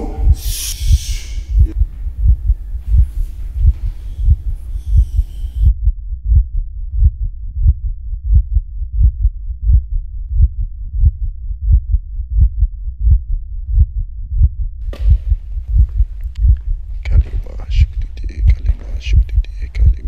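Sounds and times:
breathy hiss: 0.0 - 1.8
heartbeat thumps: 0.0 - 20.0.

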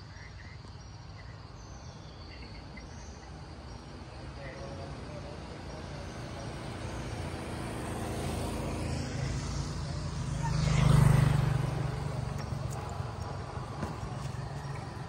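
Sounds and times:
motorbike passing by: 3.3 - 15.0.

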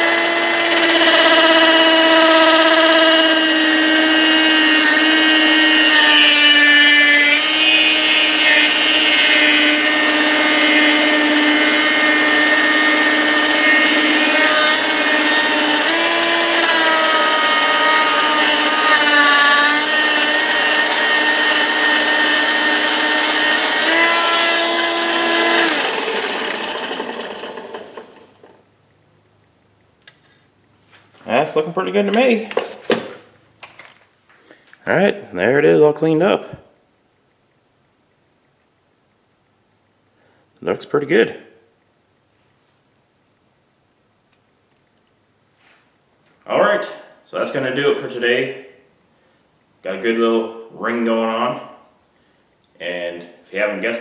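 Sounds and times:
lathe winding down: 0.0 - 28.6
mini lathe whining: 0.0 - 28.6.

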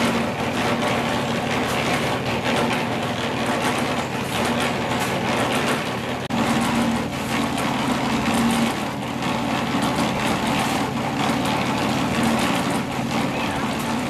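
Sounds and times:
concrete mixer engine humming: 0.0 - 14.0.

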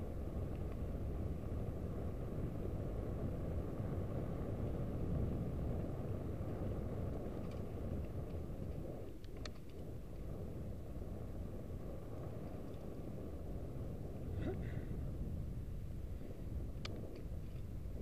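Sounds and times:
bike tyres on trail: 0.0 - 18.0
wind on microphone: 0.0 - 18.0
faint clicks: 7.1 - 10.2, 16.8 - 17.7.

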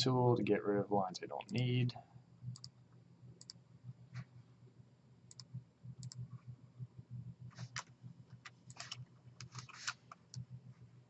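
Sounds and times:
faint low hum: 0.0 - 11.0
computer mouse clicks: 2.5 - 2.8, 3.4 - 3.6, 5.3 - 6.4, 7.6 - 10.5.

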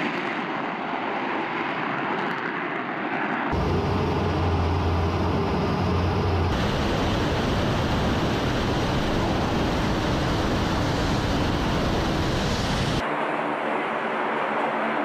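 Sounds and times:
rushing air and jet engine: 0.0 - 13.6
low cockpit drone: 3.5 - 14.9.

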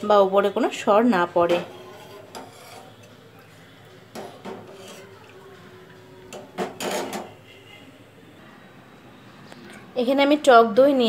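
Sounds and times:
spoon scraping saucepan: 1.3 - 7.6.

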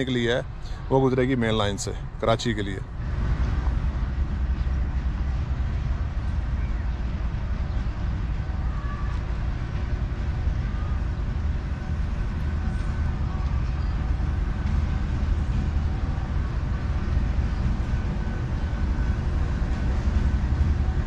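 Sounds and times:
diesel locomotive rumble: 0.0 - 21.0.

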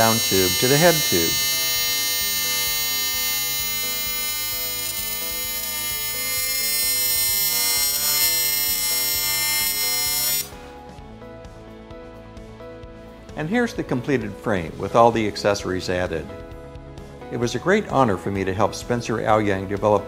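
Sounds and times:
welding arc buzzing: 0.0 - 10.6.

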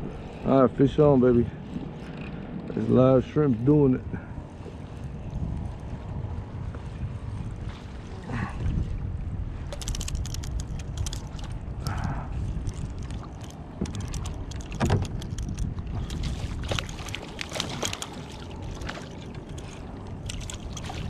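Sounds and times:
wind rumble on microphone: 0.0 - 21.0
rod and reel clicks: 9.7 - 21.0.

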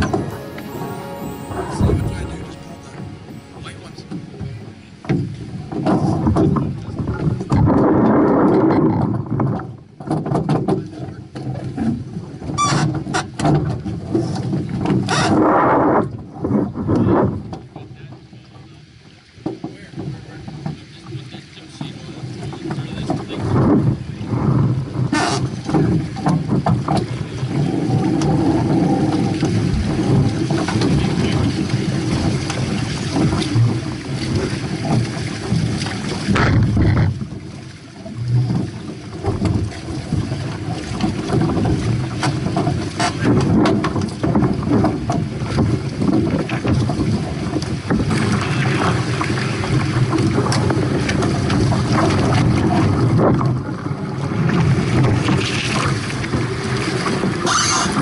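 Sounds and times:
water rushing along hulls: 0.0 - 58.0
wind buffeting microphone: 23.3 - 37.6.

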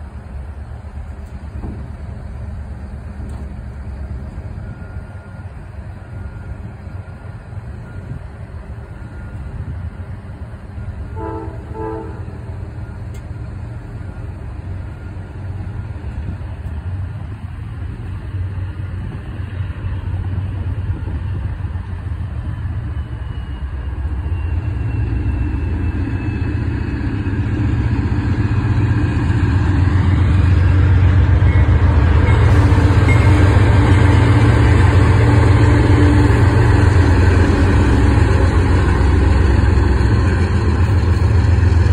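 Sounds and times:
diesel locomotive engine rumble: 0.0 - 41.9
train horn blast: 11.1 - 12.7.

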